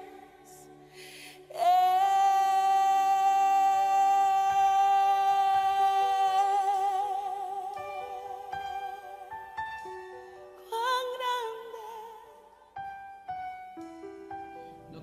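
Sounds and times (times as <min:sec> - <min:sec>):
soft sustained accompaniment: 0:00.0 - 0:15.0
person singing a long note: 0:01.5 - 0:09.2.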